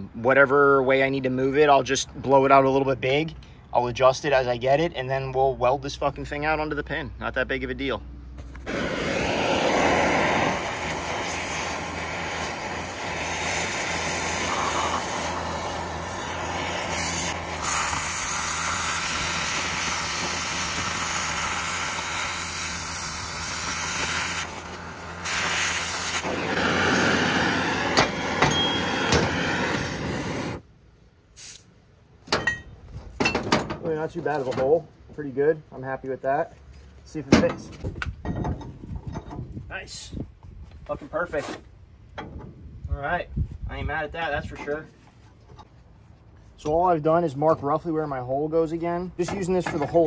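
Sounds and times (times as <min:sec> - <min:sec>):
cutting torch hissing: 0:08.7 - 0:30.6.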